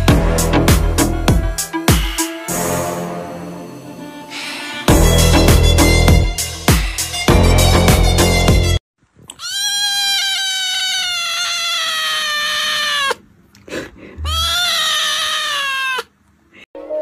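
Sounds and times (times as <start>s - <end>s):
kitten meowing: 9.3s - 13.2s, 14.2s - 16.1s.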